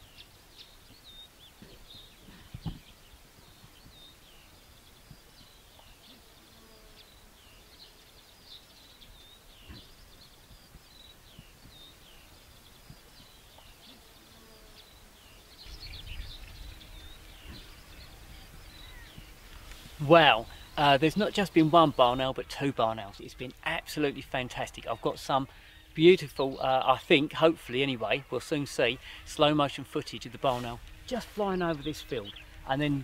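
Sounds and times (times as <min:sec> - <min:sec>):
songbirds chirping: 0:00.0 - 0:33.0.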